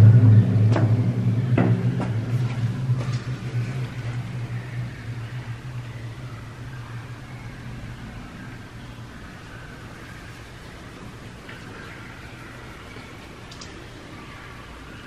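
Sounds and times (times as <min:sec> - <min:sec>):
low steady hum in tunnel: 0:00.0 - 0:15.0
faint clicks: 0:12.9 - 0:13.9.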